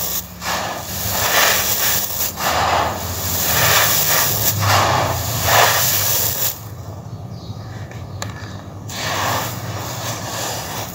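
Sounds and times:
sand falling onto wood: 0:00.0 - 0:06.6, 0:08.9 - 0:10.9.

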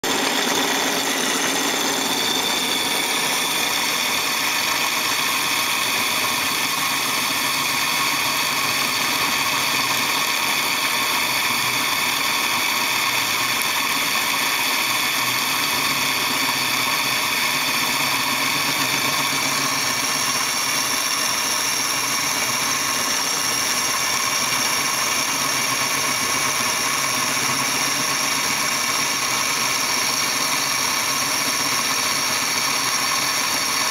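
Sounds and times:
high cutting tones: 0:00.0 - 0:06.4
metal lathe hum: 0:00.0 - 0:33.9.

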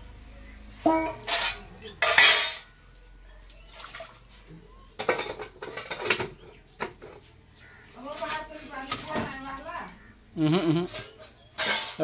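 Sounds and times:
metal lid clinking: 0:01.0 - 0:02.7.

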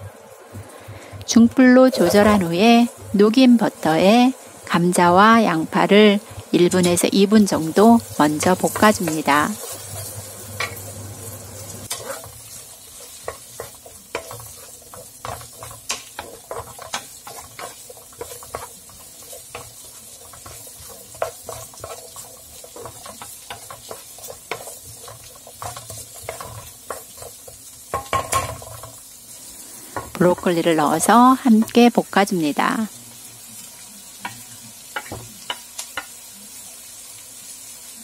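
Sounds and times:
potatoes sizzling in butter: 0:00.0 - 0:38.0
wooden spatula scraping a pan: 0:01.6 - 0:02.6, 0:07.6 - 0:10.9, 0:11.8 - 0:29.0.

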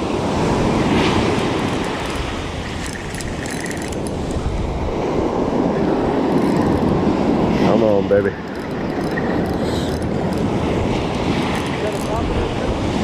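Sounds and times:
wind rumbling on microphone: 0:00.0 - 0:13.0
surf breaking on beach: 0:09.1 - 0:13.0.

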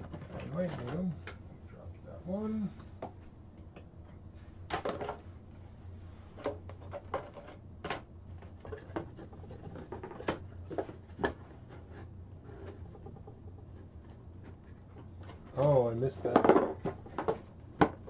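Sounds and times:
plastic parts knocking on wooden table: 0:16.2 - 0:18.0.

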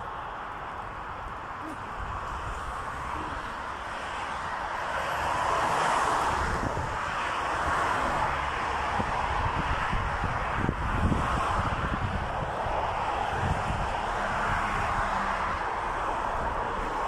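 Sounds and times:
road traffic rushing: 0:00.0 - 0:17.0
wind buffeting microphone: 0:00.0 - 0:17.0.

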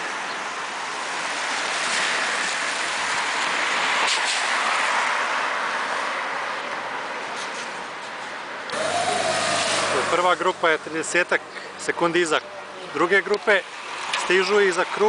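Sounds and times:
cyclists tyres and air rushing: 0:00.0 - 0:15.0.

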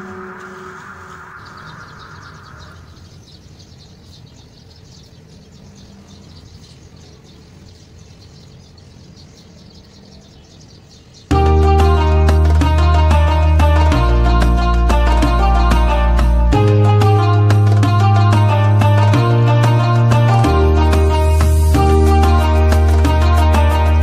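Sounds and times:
background music: 0:00.0 - 0:02.9, 0:11.3 - 0:24.0
faint steady background noise: 0:00.0 - 0:11.4
rapid high chirping: 0:00.0 - 0:11.5.

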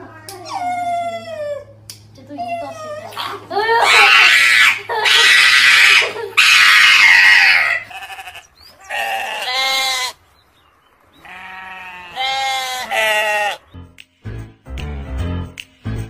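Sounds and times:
animal bleating: 0:06.7 - 0:10.2, 0:11.2 - 0:13.7.

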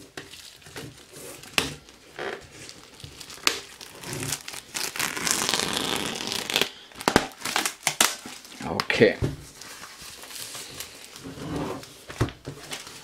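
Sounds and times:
plastic shrink-wrap crinkling: 0:00.0 - 0:11.2, 0:11.8 - 0:13.0.

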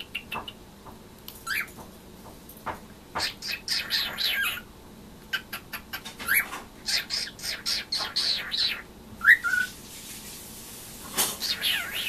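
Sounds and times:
cockatiel chirping and whistling: 0:03.2 - 0:04.6, 0:06.2 - 0:09.8, 0:11.4 - 0:12.0.

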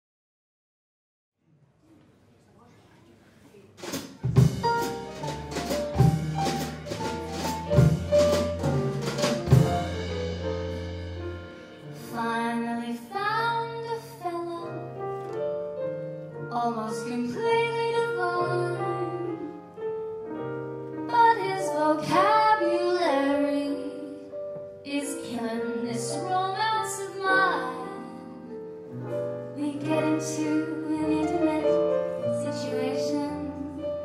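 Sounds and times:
drum kit hits: 0:03.8 - 0:12.2
electric bass: 0:04.5 - 0:11.8
woman singing: 0:12.0 - 0:15.0, 0:16.4 - 0:19.6, 0:21.1 - 0:24.3, 0:24.9 - 0:28.6, 0:29.6 - 0:34.0.

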